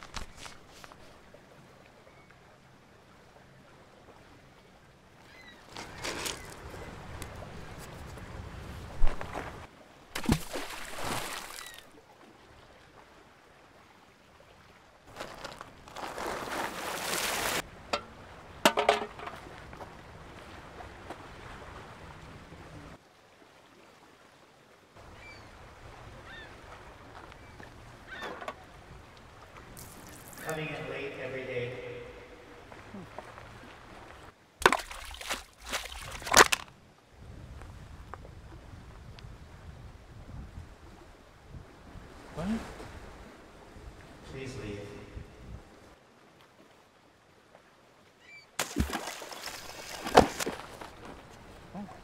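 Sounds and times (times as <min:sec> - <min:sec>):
faint bird calls: 0:05.2 - 0:07.0, 0:25.0 - 0:28.8, 0:48.2 - 0:48.6
footsteps crunching on stones: 0:05.7 - 0:06.7, 0:15.1 - 0:17.6, 0:48.6 - 0:51.4.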